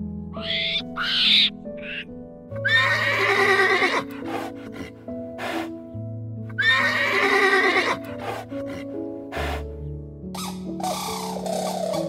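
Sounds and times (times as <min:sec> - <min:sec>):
background music with sustained notes: 0:00.0 - 0:12.0
horse whinnying: 0:00.4 - 0:02.0, 0:02.6 - 0:04.5, 0:06.6 - 0:08.4.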